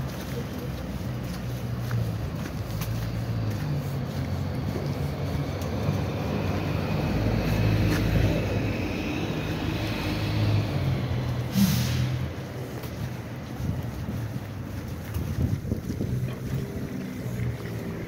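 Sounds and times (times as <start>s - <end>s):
car traffic rumble: 0.0s - 18.0s.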